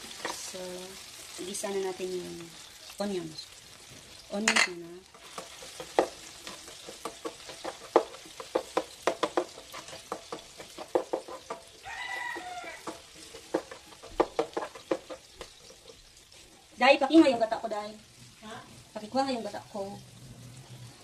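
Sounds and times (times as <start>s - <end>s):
chicken sizzling in hot oil: 0.0s - 21.0s
plastic spatula scraping pan: 5.2s - 11.6s, 12.2s - 16.0s.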